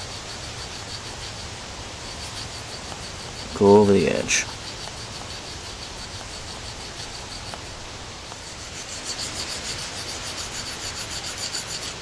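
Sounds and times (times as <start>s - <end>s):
knife scraping on whetstone: 8.3s - 12.0s.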